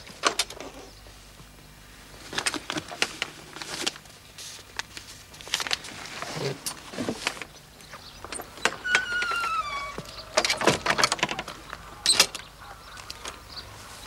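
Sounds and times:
door hinge squeaking: 8.3 - 11.2
door and latch rattling: 8.3 - 12.5.

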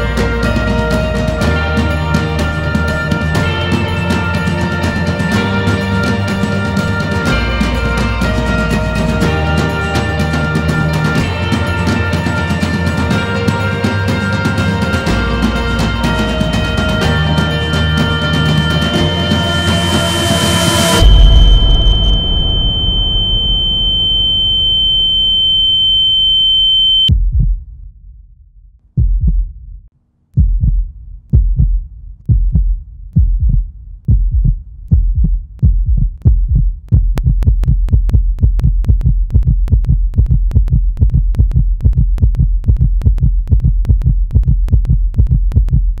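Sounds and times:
low drone: 2.0 - 27.0
heart monitor flatline tone: 19.2 - 27.5, 32.3 - 46.0
heartbeat thumps: 27.1 - 27.9, 28.9 - 29.8, 30.4 - 46.0.

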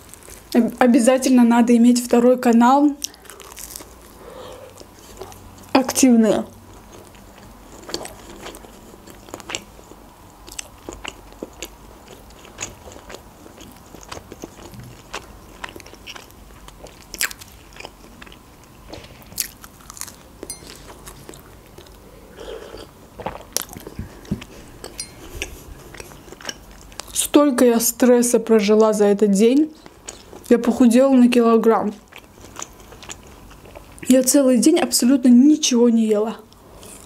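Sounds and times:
person chewing: 3.0 - 5.7, 6.7 - 27.2, 29.8 - 30.5, 32.1 - 34.0.

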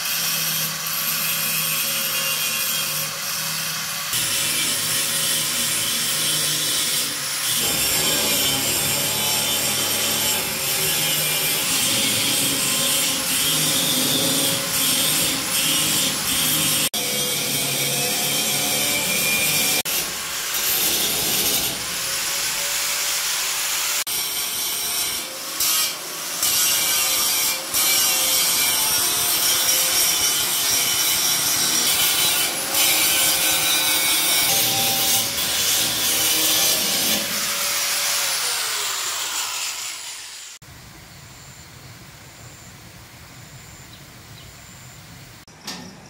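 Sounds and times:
electric grinder on metal: 0.0 - 40.6.

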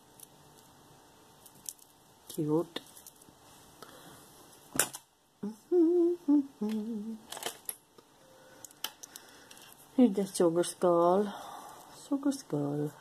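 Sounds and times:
woman humming: 5.4 - 7.3.

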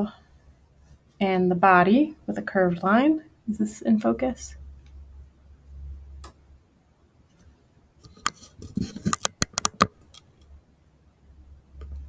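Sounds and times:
faint low hum: 0.0 - 12.0
small sharp clicks: 8.0 - 10.6.

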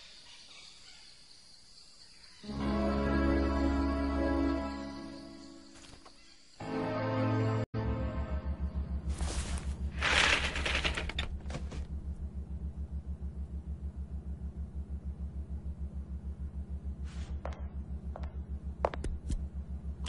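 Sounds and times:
low pulsing mechanical throb: 11.9 - 20.0.

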